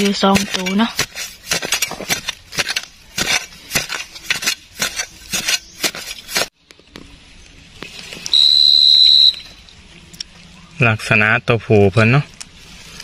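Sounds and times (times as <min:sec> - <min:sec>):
digging tool scraping gritty soil: 0:00.0 - 0:06.6, 0:12.6 - 0:13.0.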